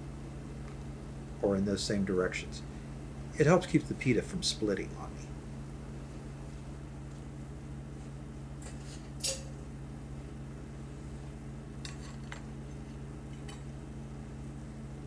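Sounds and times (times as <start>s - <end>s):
steady low hum: 0.0s - 15.0s
utensils clinking against dishes: 8.6s - 9.6s.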